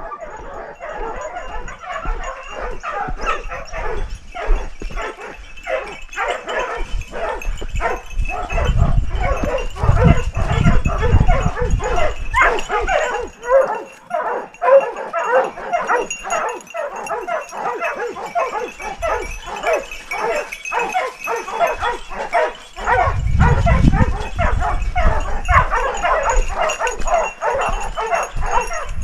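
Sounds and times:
dogs barking and yelping: 0:00.0 - 0:29.0.

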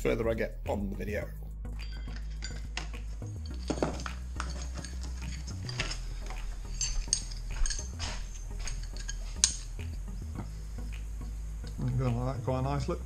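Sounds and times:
low hum: 0:01.4 - 0:13.0
metal hardware clinking: 0:01.8 - 0:10.0.

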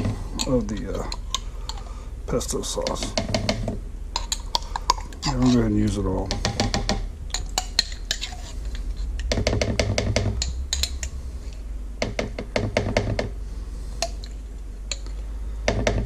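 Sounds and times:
metal spoon scraping glass jar: 0:04.2 - 0:05.7, 0:07.3 - 0:09.2, 0:10.4 - 0:11.1.

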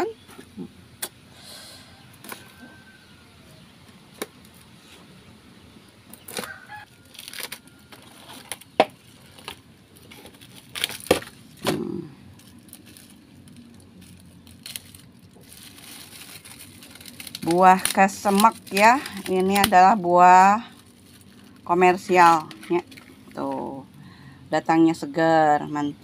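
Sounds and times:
cardboard tearing: 0:06.2 - 0:12.0.

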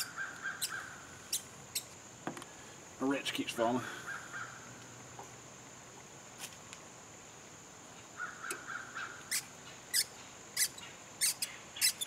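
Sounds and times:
rasping calls: 0:08.2 - 0:12.0.

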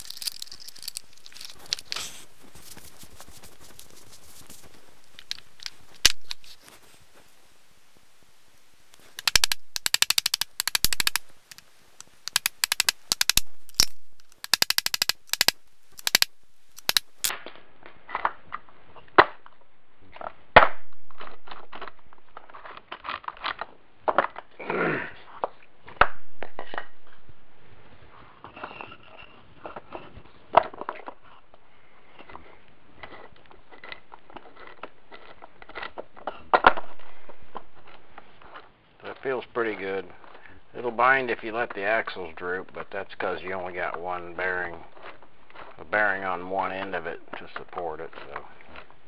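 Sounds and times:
metal parts clinking: 0:00.0 - 0:02.0, 0:09.2 - 0:17.3
sharp clicks: 0:08.9 - 0:17.3.

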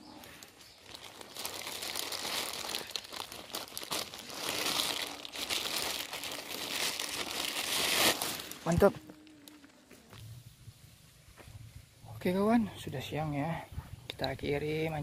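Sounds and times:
crinkly crackling rustling: 0:00.0 - 0:10.2.

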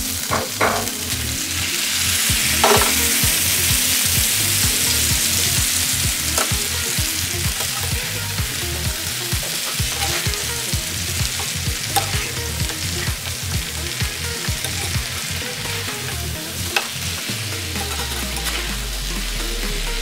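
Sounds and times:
meat sizzling in a frying pan: 0:00.0 - 0:20.0
utensil knocking against pan: 0:00.3 - 0:00.9, 0:02.6 - 0:03.0.

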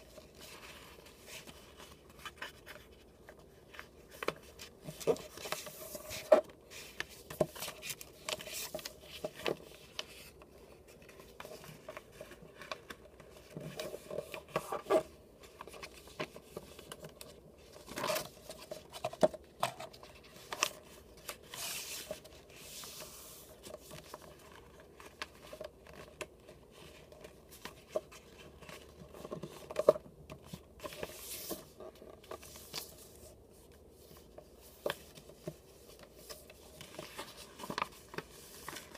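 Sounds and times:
paper rustling and sliding: 0:00.0 - 0:38.9.

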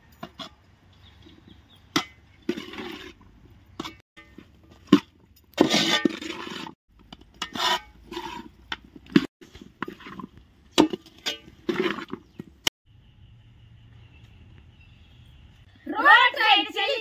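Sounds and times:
metal utensil scraping a cooking pan: 0:05.5 - 0:12.4.

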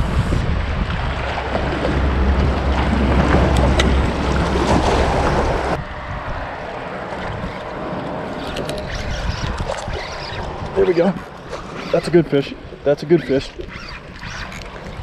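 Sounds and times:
waves washing against rocks: 0:00.0 - 0:05.8
wind buffeting microphone: 0:00.0 - 0:15.0.

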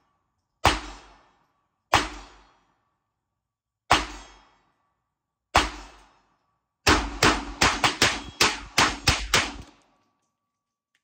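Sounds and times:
pistol gunshots: 0:00.6 - 0:01.3, 0:01.9 - 0:02.6, 0:05.5 - 0:06.1, 0:06.8 - 0:09.7.

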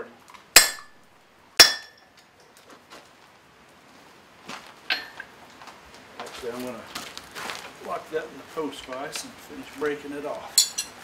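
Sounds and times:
hammer ringing on hot metal: 0:00.6 - 0:01.0, 0:01.6 - 0:02.0
light metal clinks: 0:10.5 - 0:11.0.

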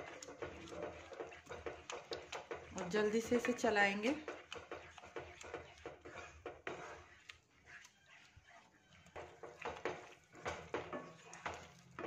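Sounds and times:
spatula scraping a pan: 0:00.0 - 0:12.0.

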